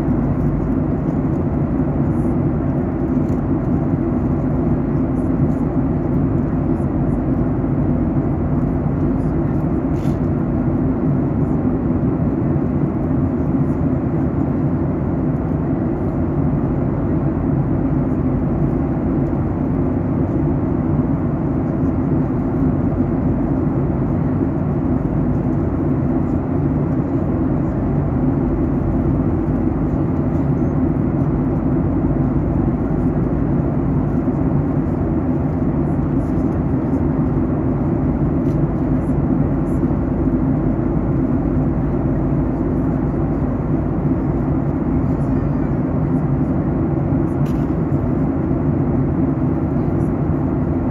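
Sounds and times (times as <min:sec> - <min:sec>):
airplane cabin roar: 0:00.0 - 0:50.9.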